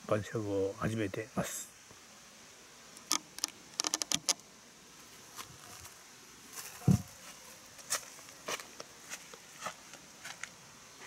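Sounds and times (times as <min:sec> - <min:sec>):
faint high hiss: 0:00.0 - 0:11.0
dull thump: 0:06.8 - 0:07.2.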